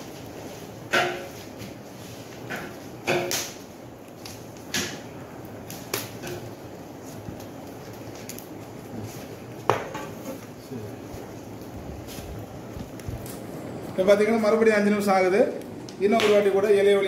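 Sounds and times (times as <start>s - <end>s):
steady background hiss: 0.0s - 17.0s
leaves rustling: 5.4s - 17.0s.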